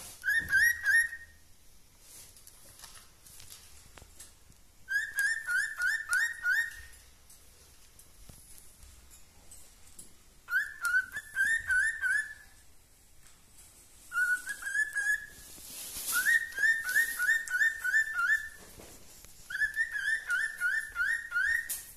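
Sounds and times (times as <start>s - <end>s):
cockatiel whistling: 0.2s - 1.4s, 4.9s - 7.0s, 10.5s - 12.6s, 14.1s - 18.6s, 19.5s - 21.9s.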